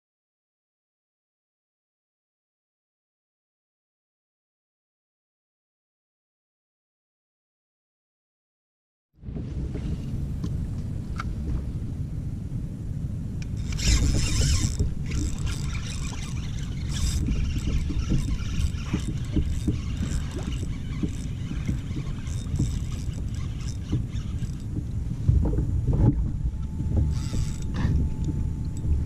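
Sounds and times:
water against kayak hull: 0:09.2 - 0:12.0, 0:13.4 - 0:29.0
wind on microphone: 0:09.2 - 0:29.0
fishing tackle clicks and scrapes: 0:13.4 - 0:24.9, 0:27.0 - 0:29.0.

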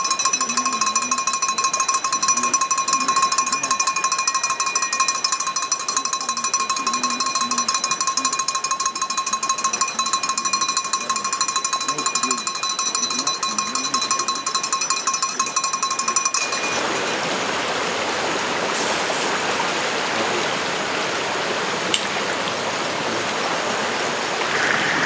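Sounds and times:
metal bell ringing rapidly: 0:00.0 - 0:17.1.

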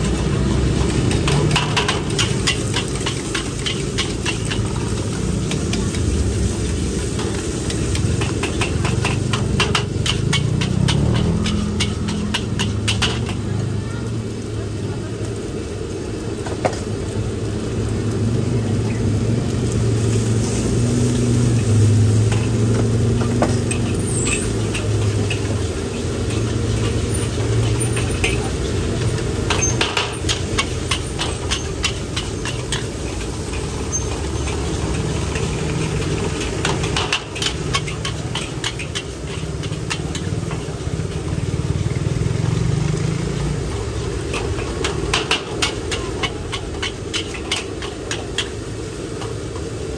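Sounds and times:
engine humming: 0:00.0 - 0:49.9
sharp clicks and knocks: 0:29.0 - 0:40.8.

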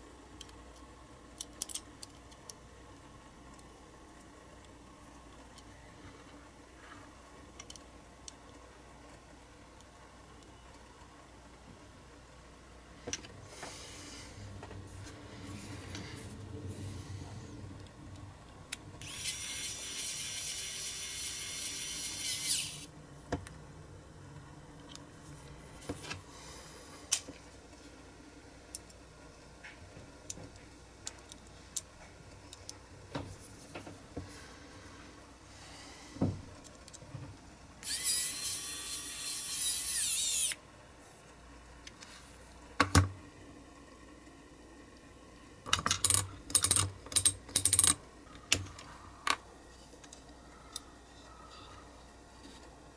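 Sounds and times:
small metal parts clicking: 0:00.4 - 0:02.6, 0:19.0 - 0:22.9, 0:37.8 - 0:40.6, 0:45.7 - 0:48.0
rotary tool whining: 0:19.0 - 0:22.9, 0:37.8 - 0:40.6.

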